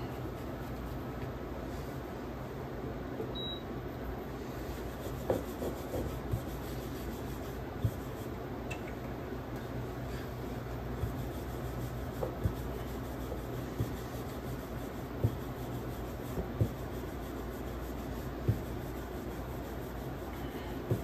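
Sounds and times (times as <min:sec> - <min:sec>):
rolling pin rubbing on dough: 0:00.0 - 0:02.0, 0:04.4 - 0:08.4, 0:10.0 - 0:21.0
steady low hum: 0:00.0 - 0:21.0.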